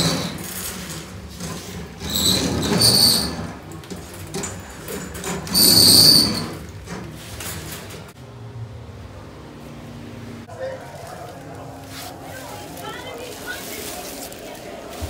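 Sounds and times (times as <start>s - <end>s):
drain snake squealing and grinding: 2.0s - 3.6s, 5.2s - 6.7s.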